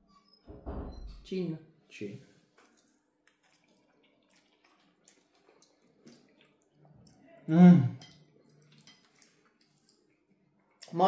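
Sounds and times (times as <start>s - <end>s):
chewing: 2.4s - 7.4s, 8.0s - 11.0s.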